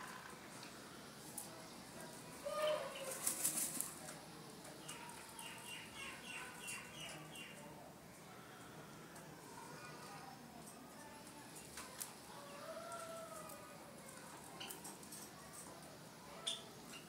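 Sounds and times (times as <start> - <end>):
bird wings flapping in sand: 3.0 - 4.0.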